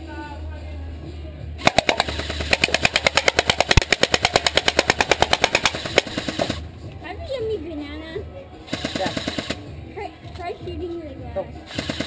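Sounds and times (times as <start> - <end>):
airsoft gun firing full auto: 1.6 - 6.6, 8.7 - 9.6, 11.7 - 12.0.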